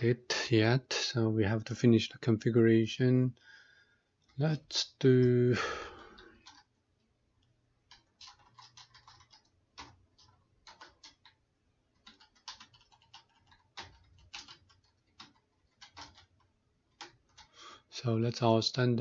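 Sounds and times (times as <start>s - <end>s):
faint keyboard typing: 5.6s - 17.6s.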